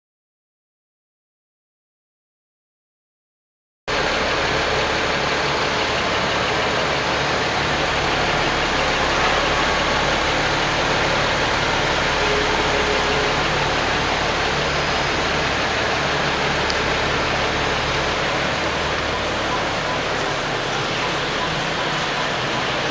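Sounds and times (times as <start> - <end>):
car engine idling: 3.9 - 22.9.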